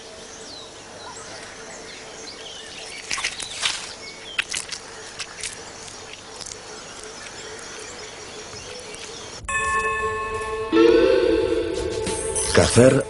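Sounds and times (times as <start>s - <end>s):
quiet forest ambience: 0.0s - 13.0s
chameleon crunching insect: 2.6s - 9.4s.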